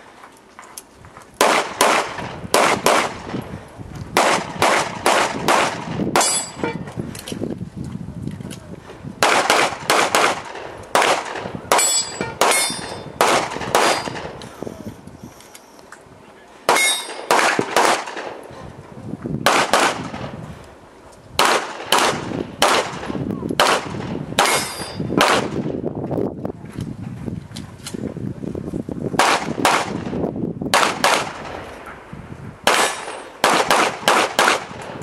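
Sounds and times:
rapid pistol shots: 1.4s - 3.4s, 4.2s - 6.6s, 9.2s - 14.4s, 16.7s - 18.4s, 19.4s - 20.3s, 21.4s - 25.6s, 29.2s - 31.7s, 32.6s - 35.0s.

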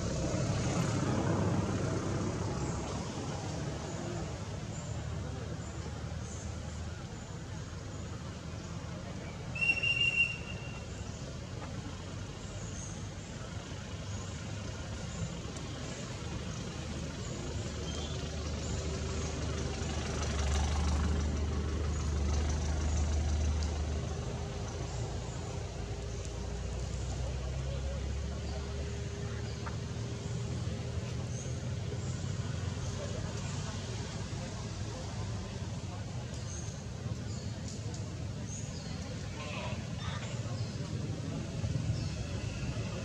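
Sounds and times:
low engine-like rumble: 0.0s - 43.0s.

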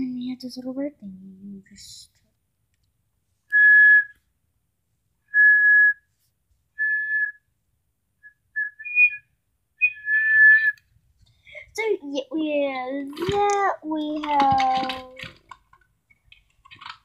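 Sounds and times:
toy whistle toots: 3.5s - 4.2s, 8.6s - 9.2s.

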